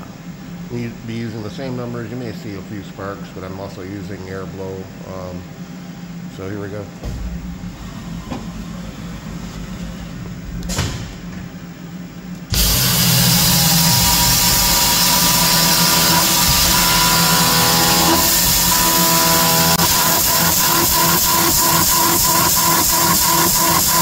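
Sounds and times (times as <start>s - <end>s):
air blast hissing: 12.5s - 24.0s
end mill cutting steel: 12.5s - 24.0s
milling machine running: 12.5s - 24.0s.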